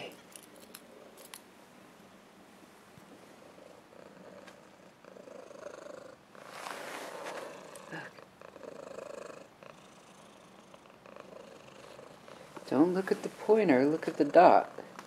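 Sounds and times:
cat purring: 3.2s - 15.0s.

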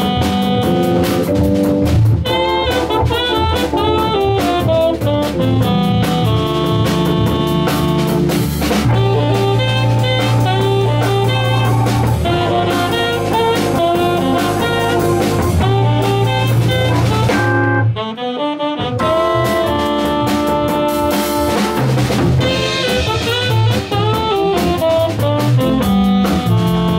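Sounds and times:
drum kit: 0.0s - 26.9s
electric guitar: 0.0s - 26.9s
drawbar organ: 7.3s - 18.0s.

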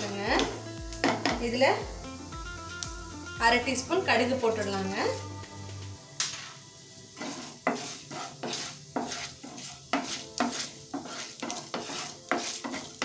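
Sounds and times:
oil sizzling: 0.0s - 13.0s
spatula scraping frying pan: 6.3s - 13.0s.

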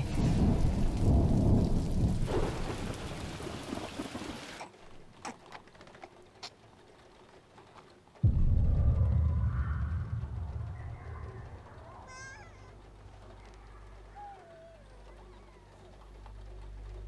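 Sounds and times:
deep thunder-like rumble: 0.0s - 3.5s, 8.2s - 14.0s.

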